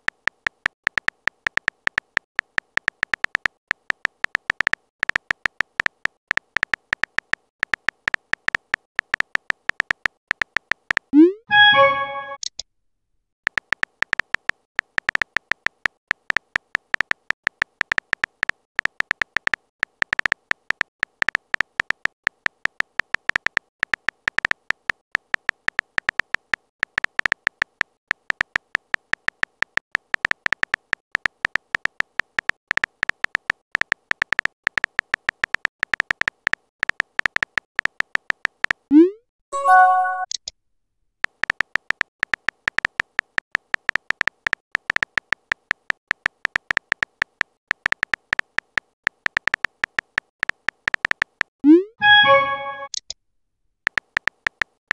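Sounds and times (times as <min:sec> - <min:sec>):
phone keyboard typing clicks: 0:00.0 - 0:12.6, 0:13.5 - 0:38.9, 0:41.2 - 0:53.1, 0:53.9 - 0:54.9
message sent chime with rising swoop: 0:11.2 - 0:12.4, 0:39.0 - 0:40.3, 0:51.7 - 0:53.0.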